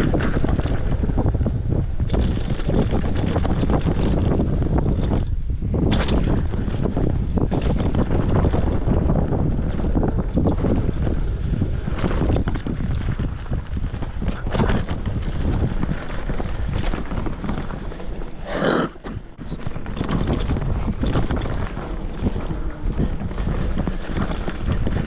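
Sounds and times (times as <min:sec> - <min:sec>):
mountain bike rumble and rattle: 0:00.0 - 0:18.4, 0:19.4 - 0:25.0
wind buffeting microphone: 0:00.0 - 0:25.0.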